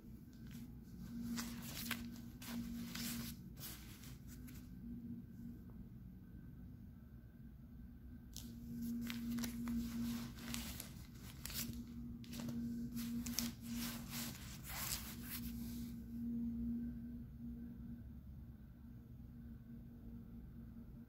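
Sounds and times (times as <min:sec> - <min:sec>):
diaper rustling and crinkling: 0:00.3 - 0:04.7, 0:08.4 - 0:16.0.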